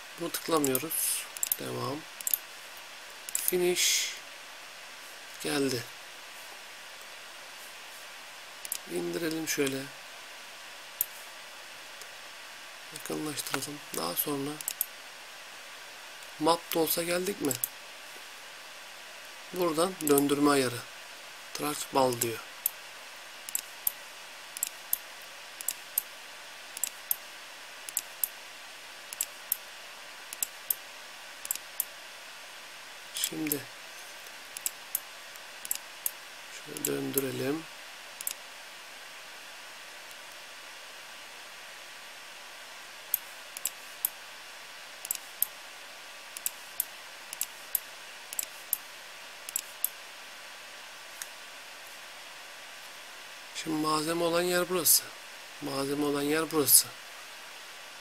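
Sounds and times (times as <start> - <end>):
faint steady hiss: 0.0 - 58.0
mouse buttons clicking: 20.0 - 20.3.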